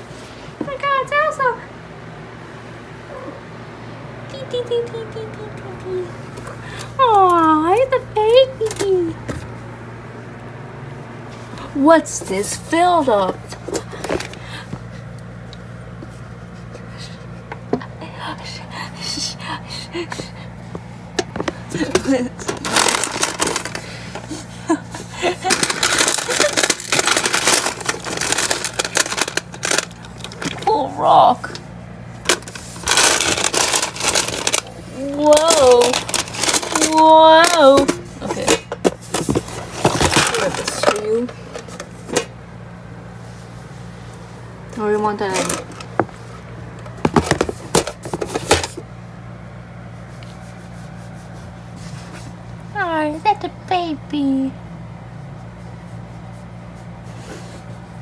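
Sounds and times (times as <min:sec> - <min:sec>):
steady low hum: 0:00.0 - 0:58.0
objects rattling in metal tin: 0:22.0 - 0:23.8, 0:25.2 - 0:30.7, 0:32.3 - 0:41.7.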